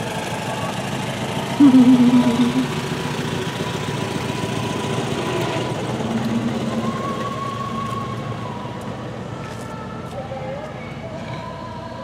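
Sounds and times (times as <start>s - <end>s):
vehicle engine running: 0.0s - 8.6s.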